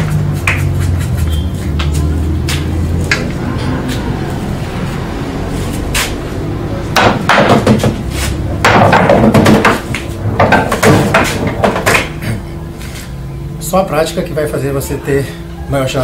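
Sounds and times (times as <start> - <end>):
balls clacking: 6.9 - 12.2
cue striking ball: 7.0 - 12.2.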